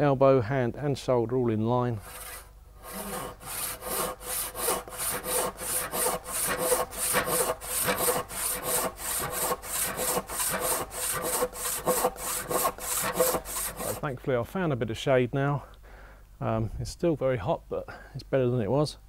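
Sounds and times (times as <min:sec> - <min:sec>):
handsaw cutting wood: 0:02.0 - 0:14.1.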